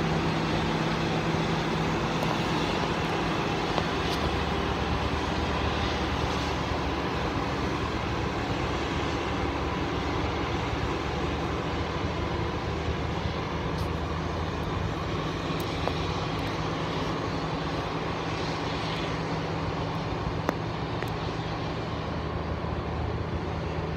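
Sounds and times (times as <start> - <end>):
combine harvester running: 0.0 - 23.9.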